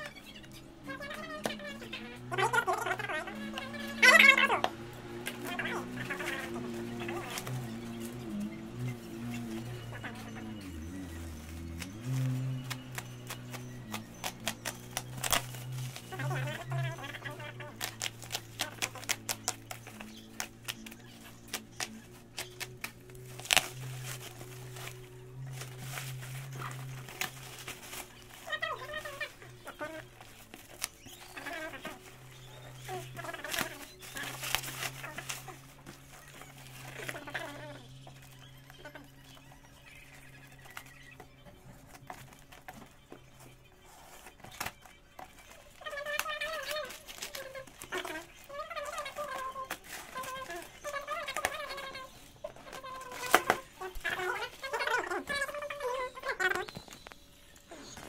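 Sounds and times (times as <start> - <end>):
bubble wrap crackling and tearing: 0.0 - 58.0
cardboard and tape rustles: 0.0 - 58.0
steady low hum: 0.0 - 58.0
warbling call: 0.8 - 19.3.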